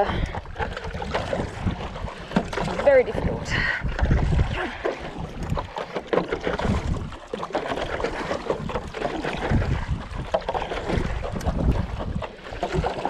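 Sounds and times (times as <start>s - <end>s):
paddle splashing in water: 0.0s - 13.0s
water sloshing against board: 0.0s - 13.0s
wind rumble on microphone: 0.0s - 13.0s.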